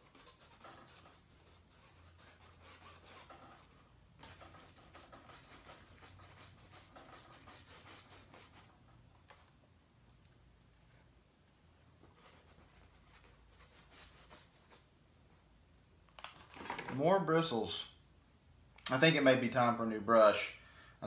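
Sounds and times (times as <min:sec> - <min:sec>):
brush scratching on canvas: 0:00.0 - 0:09.4, 0:12.0 - 0:14.9.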